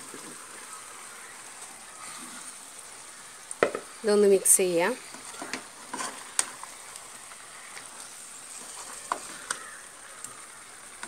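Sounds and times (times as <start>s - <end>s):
meat frying in a pan: 0.0s - 11.0s
utensil clicking against pan: 8.7s - 10.4s.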